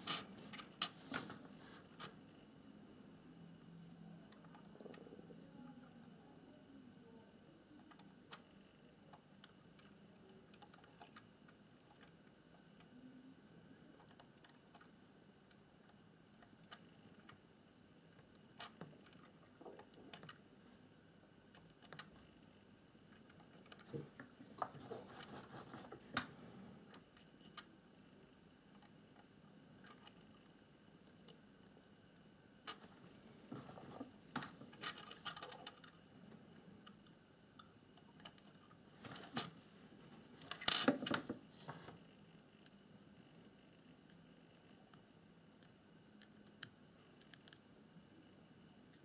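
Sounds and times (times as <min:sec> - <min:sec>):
crackling clicks: 0:21.5 - 0:22.3.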